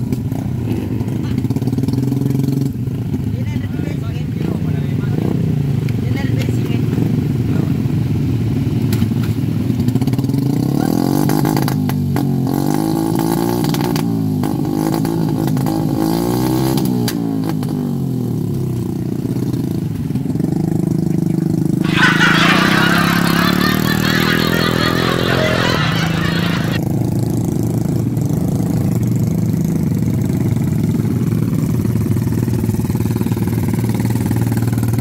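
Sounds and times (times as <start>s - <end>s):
motorcycle engines revving: 4.3s - 18.3s, 19.0s - 31.3s.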